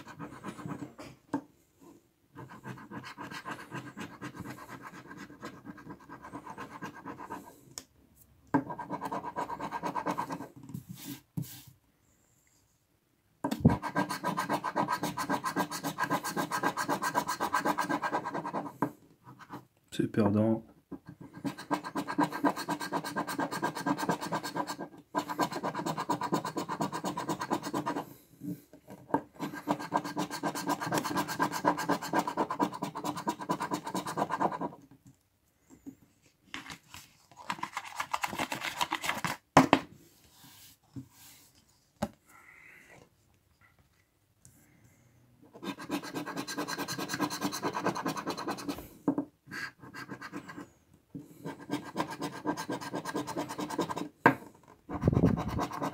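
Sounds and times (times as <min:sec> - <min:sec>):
coin scraping scratch card: 0:13.7 - 0:18.6, 0:21.4 - 0:28.0, 0:45.6 - 0:48.8, 0:51.4 - 0:54.1, 0:54.9 - 0:55.9.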